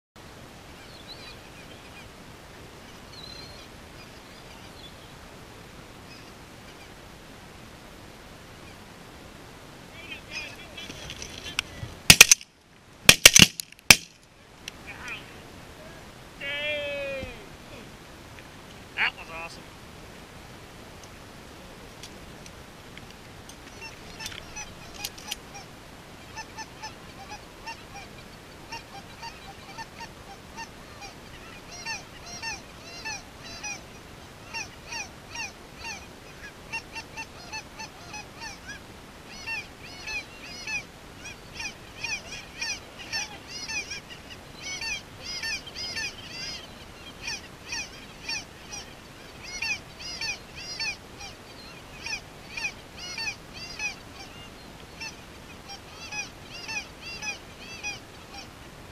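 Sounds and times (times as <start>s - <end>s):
geese honking: 10.0s - 12.4s, 23.7s - 58.6s.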